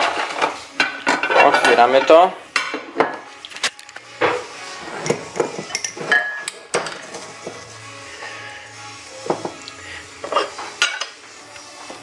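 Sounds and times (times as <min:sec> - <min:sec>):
glass clinks and knocks: 0:05.6 - 0:07.0.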